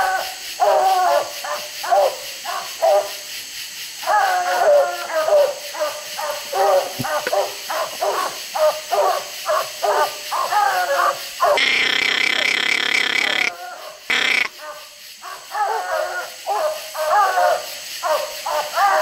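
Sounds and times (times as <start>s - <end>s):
dogs barking: 0.0s - 3.2s, 4.0s - 19.0s
high-pitched tone: 11.6s - 13.5s, 14.1s - 14.5s.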